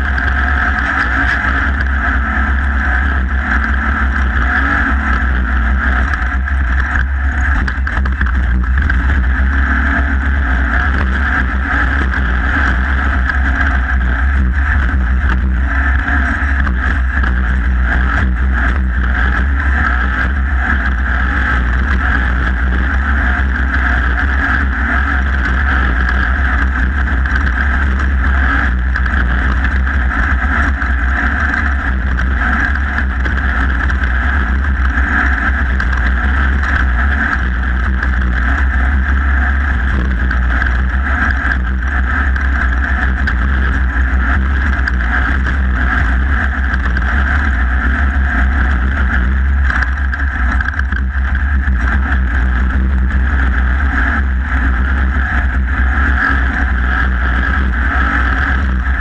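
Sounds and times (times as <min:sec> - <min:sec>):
race buggy engine droning: 0:00.0 - 0:59.0.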